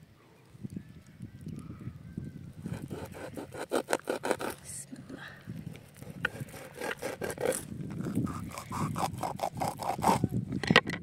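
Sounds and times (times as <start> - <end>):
knife rasping through fish skin: 2.6 - 4.6, 5.7 - 10.2.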